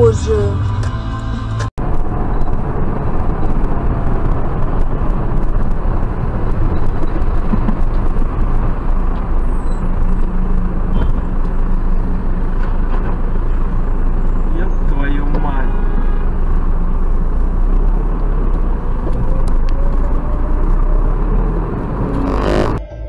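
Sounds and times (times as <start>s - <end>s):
car road and engine noise: 0.0s - 23.0s
low hum: 15.6s - 23.0s.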